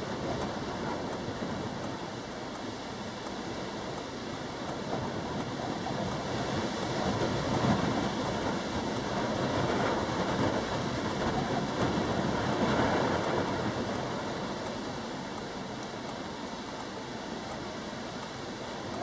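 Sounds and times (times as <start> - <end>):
strong gusty wind: 3.5 - 15.4.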